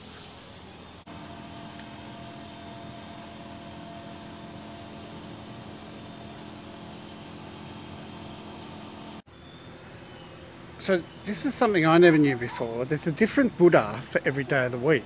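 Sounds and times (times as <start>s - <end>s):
hiss: 0.0s - 1.1s
mechanical hum: 0.0s - 15.0s.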